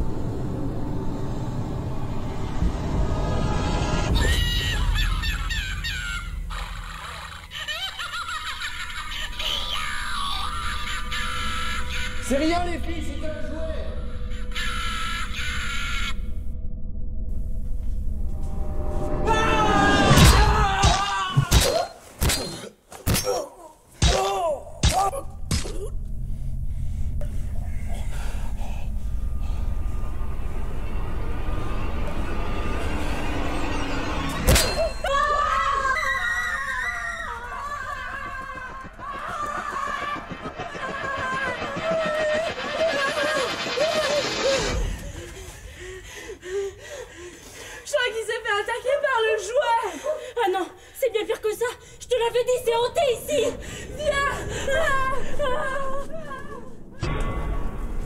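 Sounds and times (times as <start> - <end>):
low rumble: 0.0 - 7.3, 15.5 - 20.7, 25.4 - 34.4, 52.9 - 58.0.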